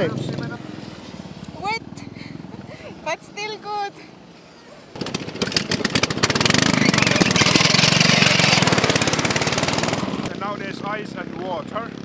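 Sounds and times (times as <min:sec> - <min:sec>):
lawn mower engine running hard: 0:04.9 - 0:10.7.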